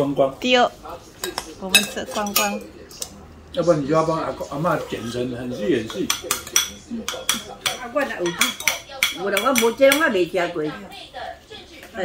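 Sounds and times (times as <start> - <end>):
voices talking: 0.0 - 12.0
metal spoons clinking on pot: 1.2 - 3.1, 5.8 - 10.2.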